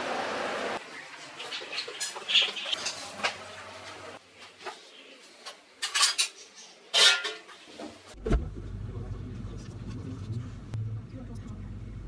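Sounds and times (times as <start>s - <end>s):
kitchenware clattering: 5.8s - 7.7s.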